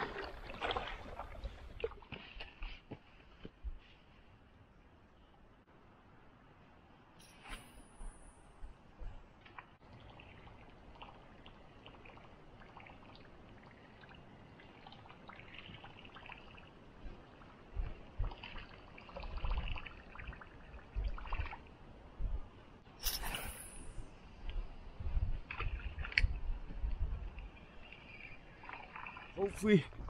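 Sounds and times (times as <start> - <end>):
small waves lapping against rocks: 0.0 - 2.4
wind buffeting microphone: 16.9 - 22.8, 23.8 - 28.6.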